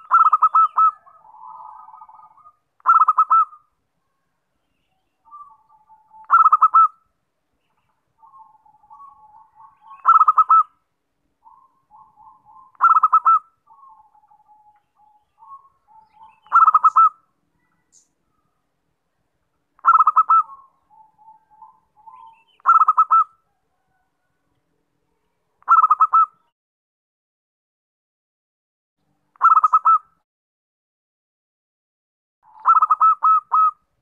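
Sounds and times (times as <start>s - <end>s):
dove trilled cooing song: 0.0s - 10.8s, 11.4s - 18.6s, 19.8s - 24.6s, 25.6s - 26.5s, 29.3s - 30.2s, 32.4s - 34.0s.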